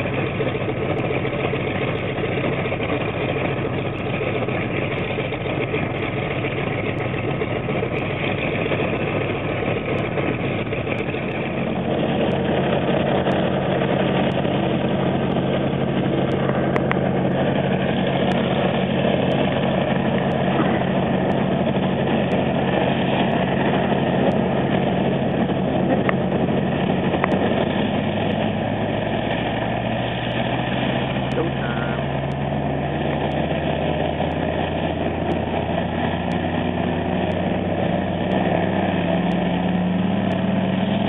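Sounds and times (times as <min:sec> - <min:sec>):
twin propeller engines running: 0:00.0 - 0:41.0.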